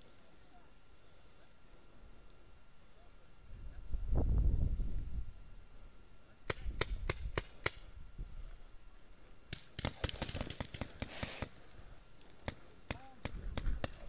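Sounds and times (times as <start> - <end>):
paintball markers firing: 6.4 - 7.9, 9.5 - 11.6, 12.2 - 14.0
air hiss: 10.7 - 11.8.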